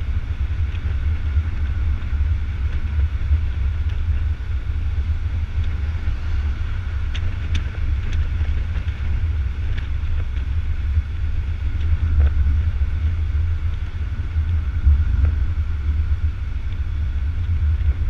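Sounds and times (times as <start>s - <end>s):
car driving rumble: 0.0s - 18.0s
wind and road noise: 0.0s - 18.0s
faint ticks: 7.1s - 10.6s.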